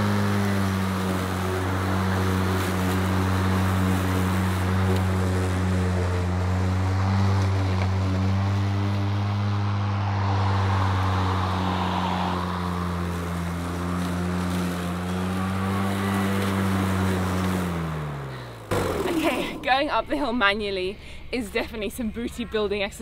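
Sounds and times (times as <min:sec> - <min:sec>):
electric lawn mower whirring: 0:00.0 - 0:19.9.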